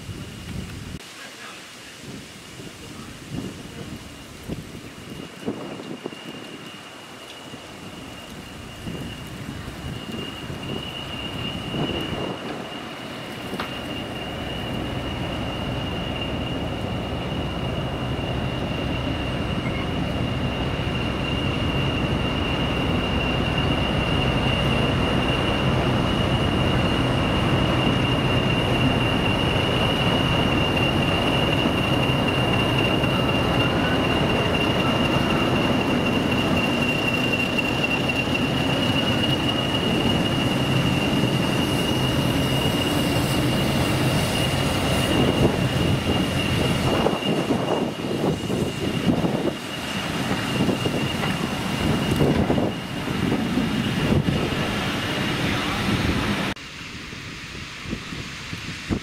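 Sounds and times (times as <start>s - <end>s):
diesel locomotive engine drone: 0.0s - 59.0s
turbocharger whistle: 13.5s - 54.5s.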